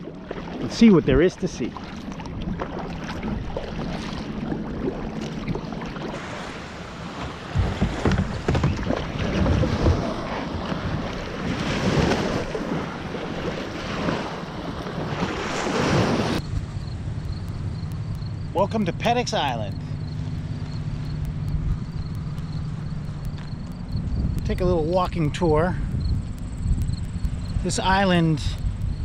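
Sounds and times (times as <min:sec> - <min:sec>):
kayak paddle splashing water: 0:00.0 - 0:17.2
wind buffeting microphone: 0:00.0 - 0:18.9, 0:19.7 - 0:29.0.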